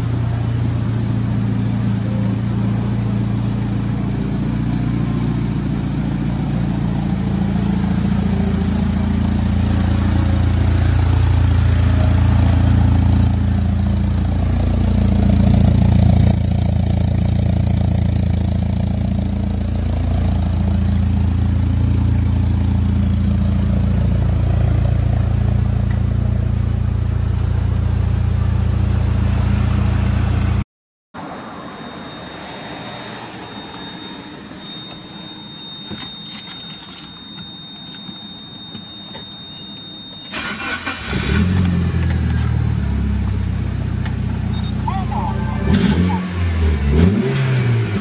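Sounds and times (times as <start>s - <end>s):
car engine idling: 0.0s - 30.6s, 33.4s - 48.0s
thin high steady tone: 31.2s - 40.8s
engine cranking and starting: 39.1s - 42.7s.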